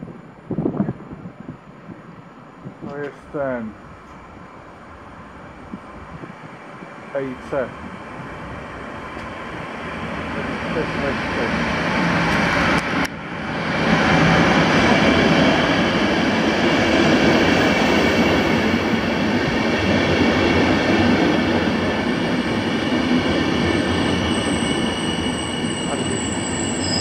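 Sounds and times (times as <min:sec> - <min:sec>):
train wheels on rails: 0:04.0 - 0:27.0
faint high squeal: 0:24.1 - 0:27.0.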